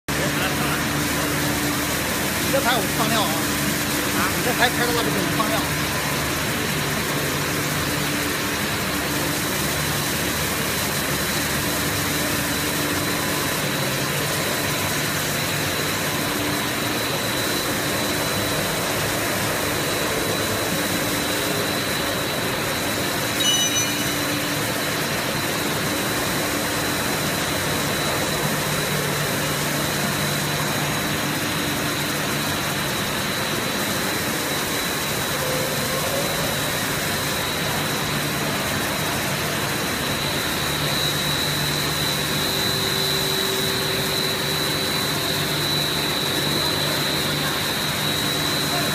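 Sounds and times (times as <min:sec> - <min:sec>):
machinery whine and hum: 0:00.1 - 0:48.9
high-pitched squeak: 0:23.4 - 0:24.3.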